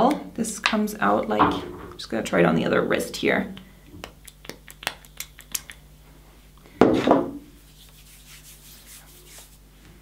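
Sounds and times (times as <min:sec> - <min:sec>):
skin rubbing on skin: 0:07.5 - 0:09.7.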